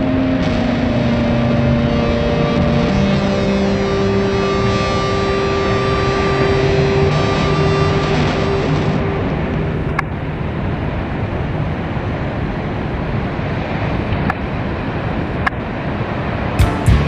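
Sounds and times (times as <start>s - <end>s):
music: 0.0s - 9.2s, 16.6s - 17.0s
ocean surf breaking: 0.0s - 17.0s.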